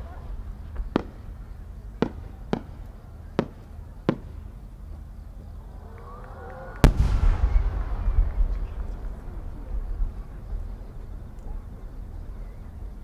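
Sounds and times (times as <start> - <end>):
steady low rumble: 0.0 - 13.0
firework pops: 2.0 - 4.4, 6.8 - 10.1.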